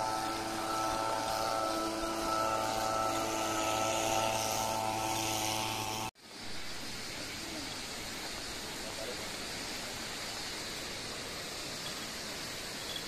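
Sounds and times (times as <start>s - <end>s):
engine droning: 0.0s - 6.1s
steady rushing noise: 0.0s - 6.8s.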